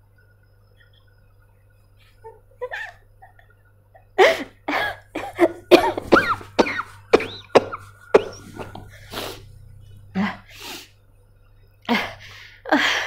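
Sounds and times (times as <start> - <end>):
woman coughing: 4.2 - 9.1.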